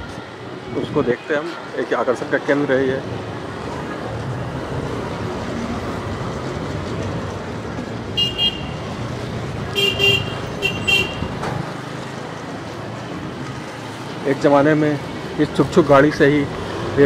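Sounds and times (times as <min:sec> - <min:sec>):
road traffic noise: 0:00.0 - 0:17.0
vehicle horns honking: 0:08.2 - 0:08.9, 0:09.7 - 0:11.4.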